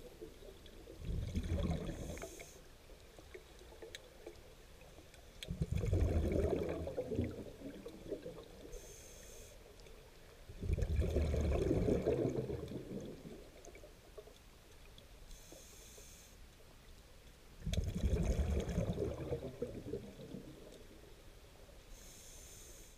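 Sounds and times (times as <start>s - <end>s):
exhaled bubbles rumbling underwater: 0.0s - 8.8s, 9.9s - 15.0s, 17.6s - 21.8s
regulator inhalation hiss: 8.8s - 9.7s, 15.3s - 16.4s, 21.9s - 22.9s.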